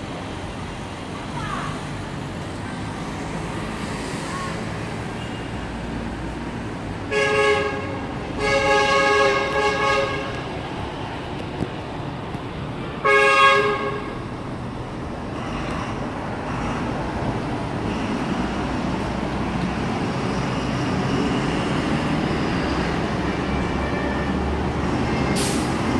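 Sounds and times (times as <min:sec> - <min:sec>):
traffic hum of engines and tyres: 0:00.0 - 0:25.9
vehicle horn honk: 0:07.1 - 0:10.4, 0:13.0 - 0:14.2.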